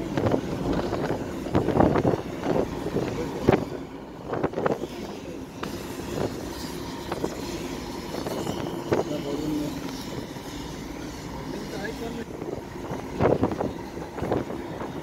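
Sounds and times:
tyre and wind noise on wet road: 0.0s - 10.4s.

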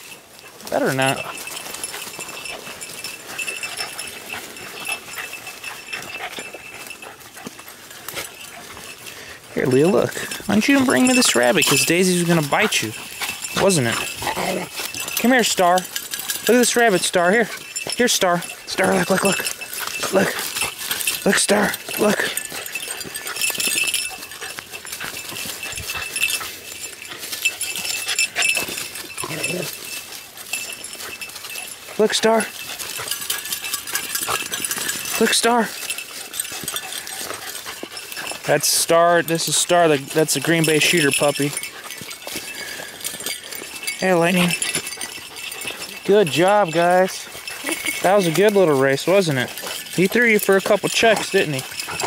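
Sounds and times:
dogs scrambling in dry leaves: 0.0s - 52.0s.

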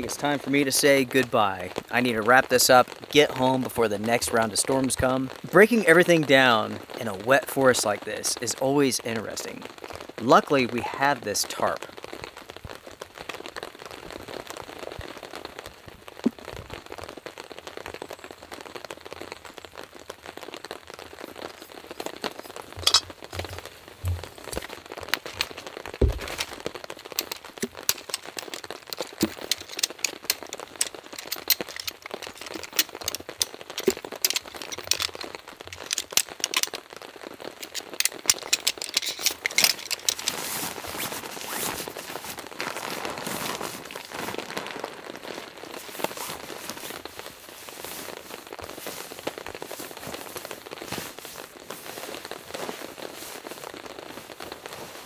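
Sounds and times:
rain pattering: 0.0s - 55.0s
tent pole sections clicking: 22.0s - 52.9s.

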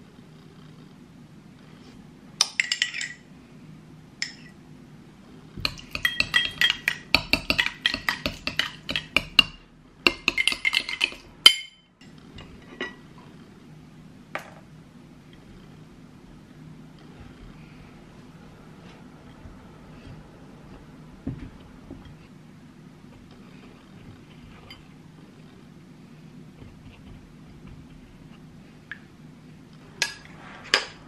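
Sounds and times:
metal spoon clinking on glass: 5.6s - 9.5s, 10.1s - 11.9s.

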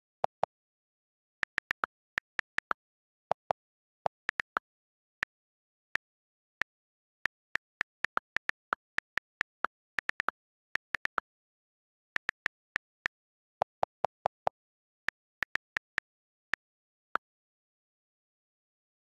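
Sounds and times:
phone keyboard clicks: 1.4s - 4.6s, 5.2s - 11.4s.

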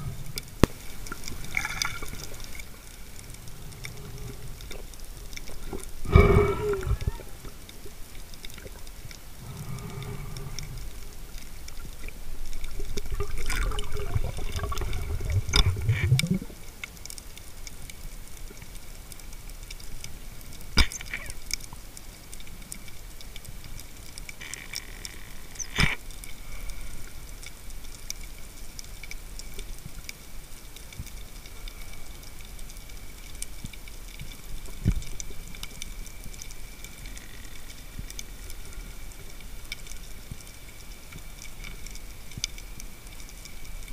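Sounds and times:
rushing bubbling water: 0.0s - 19.5s
faint underwater hiss: 0.0s - 43.9s.

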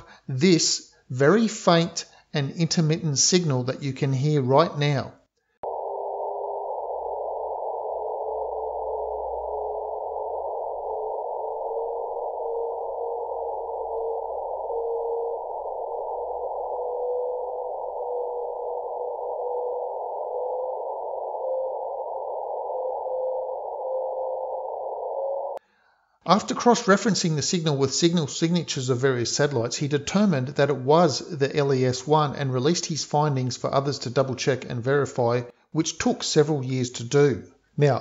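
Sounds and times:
receiver hiss: 5.6s - 25.6s
thin tone drifting upward: 5.6s - 25.6s.

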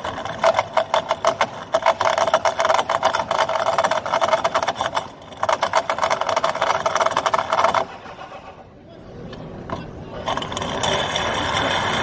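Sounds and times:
cutter rattling against pipe: 0.0s - 8.0s.

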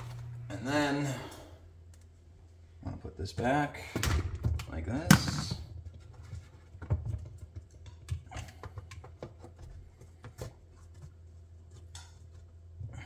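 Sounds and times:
plastic parts clicking and knocking: 4.0s - 11.1s.

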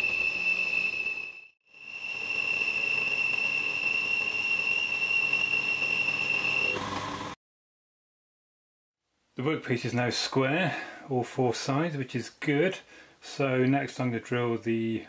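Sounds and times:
milling machine whine: 0.0s - 7.4s.

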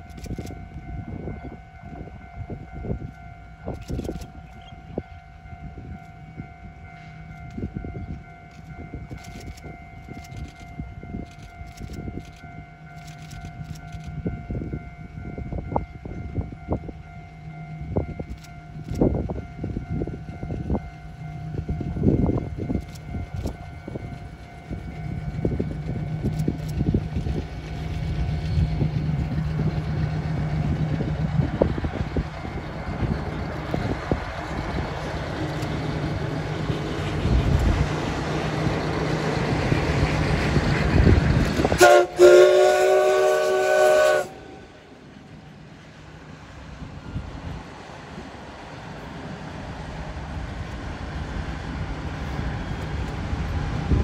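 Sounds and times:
steam train running rumble: 0.0s - 54.0s
steam locomotive whistle: 41.6s - 45.0s.

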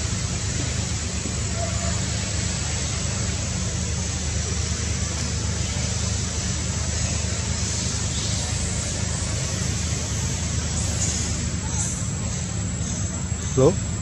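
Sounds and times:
constant hiss: 0.0s - 14.0s
low motor hum: 0.0s - 14.0s.

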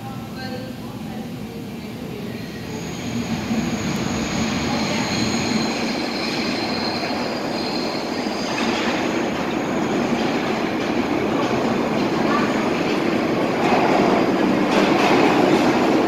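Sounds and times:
subway train rumble: 0.0s - 16.0s
high-pitched wheel squeal: 2.8s - 8.8s.

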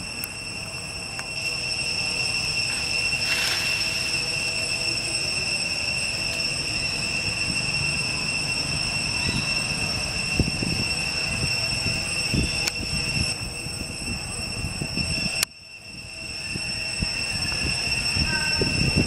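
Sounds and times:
insects droning: 0.0s - 19.0s.

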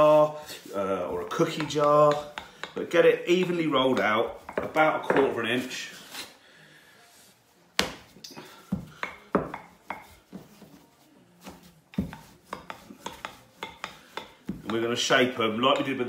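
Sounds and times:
rolling pin rolling dough: 0.0s - 6.2s, 7.1s - 16.0s.

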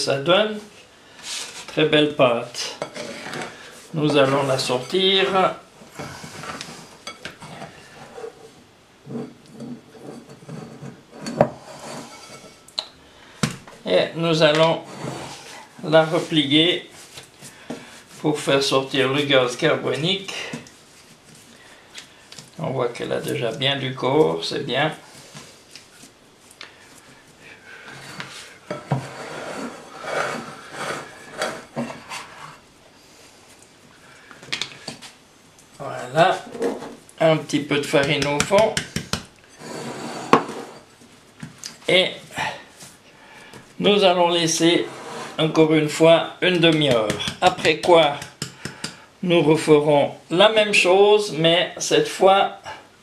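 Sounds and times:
dough rubbing against glass bowl: 8.0s - 12.6s, 14.8s - 17.2s
hands kneading bread dough: 33.4s - 39.4s, 46.4s - 49.0s.

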